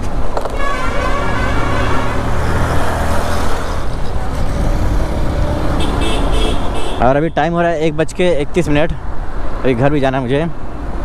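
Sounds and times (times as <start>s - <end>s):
traffic noise: 0.0s - 11.0s
motorcycle engine hum: 2.0s - 7.0s.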